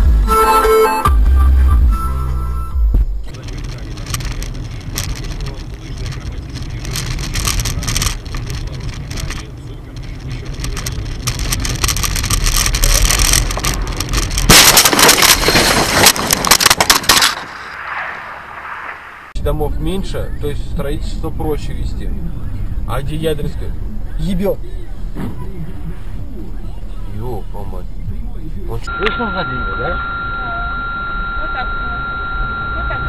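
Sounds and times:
low engine rumble: 1.1 - 33.0
car interior road noise: 2.3 - 29.6
loud crackling noise: 2.9 - 19.6
scattered clicks: 3.2 - 17.7.

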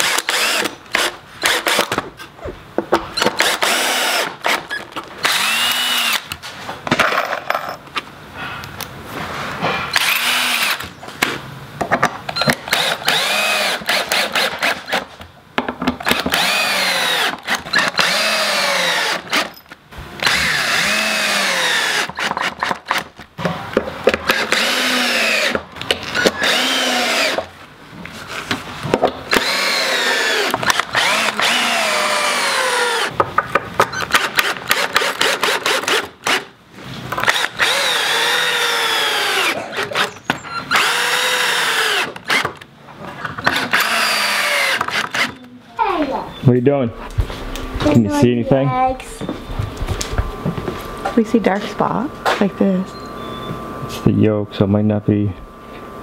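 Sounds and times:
cordless drill driving screws into wood: 0.0 - 2.1, 3.2 - 6.5, 9.9 - 11.0, 12.3 - 15.2, 16.0 - 23.2, 24.1 - 27.5, 29.3 - 33.2, 33.8 - 36.5, 37.2 - 42.7, 43.4 - 45.4.

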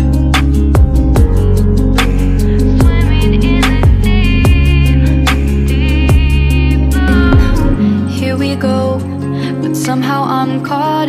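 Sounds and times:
electronic pop song: 0.0 - 11.0
falling bass drops: 2.7 - 7.9.

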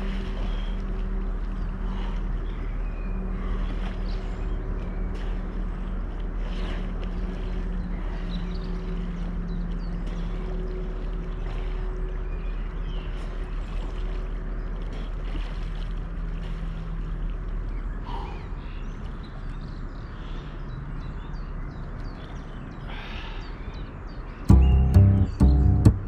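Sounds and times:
steady engine hum: 0.0 - 26.0.

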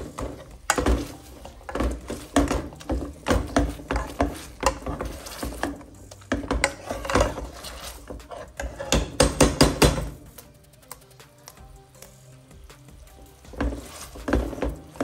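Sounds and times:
potato masher knocking on pan: 0.0 - 7.5, 8.1 - 10.2
faint background music: 0.0 - 15.0.

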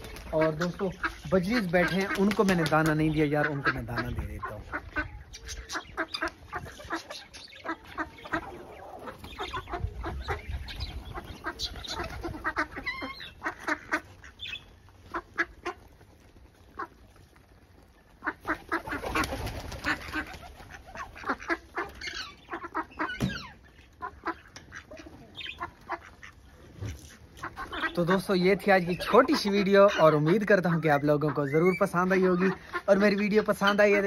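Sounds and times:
chickens clucking: 0.0 - 34.0
ducks calling: 0.0 - 34.0.

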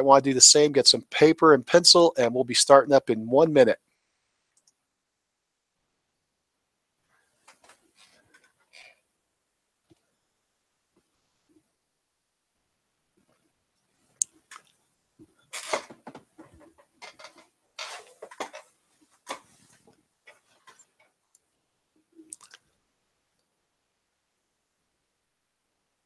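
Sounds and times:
handling noises: 14.4 - 21.2.

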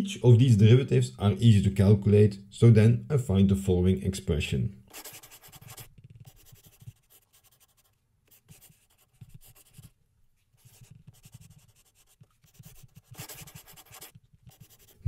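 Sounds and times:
stylus scratching on tablet: 4.9 - 15.0.

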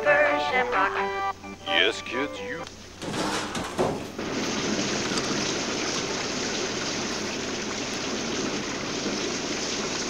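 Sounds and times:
rain falling: 4.0 - 10.0.

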